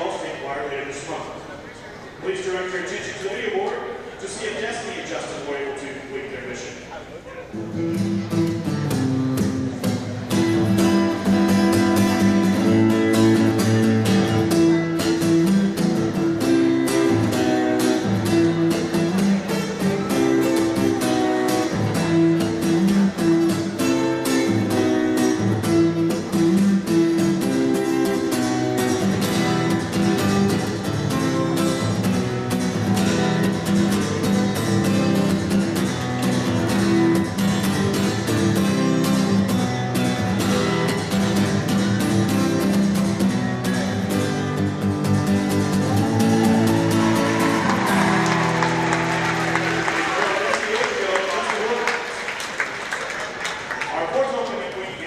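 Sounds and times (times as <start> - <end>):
plucked and strummed guitar: 7.4 - 50.0.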